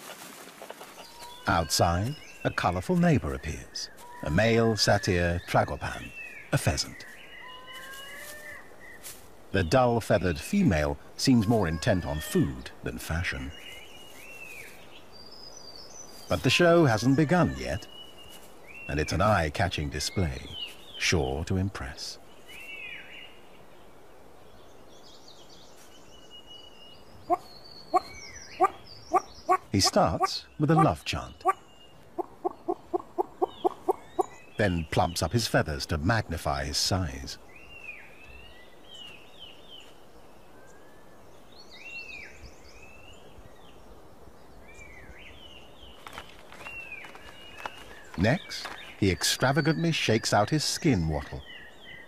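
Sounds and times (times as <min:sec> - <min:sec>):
bird courtship call: 0:00.0 - 0:22.0, 0:26.6 - 0:35.2, 0:44.8 - 0:52.0
faint birds chirping: 0:00.0 - 0:52.0
faint forest hiss: 0:00.0 - 0:52.0.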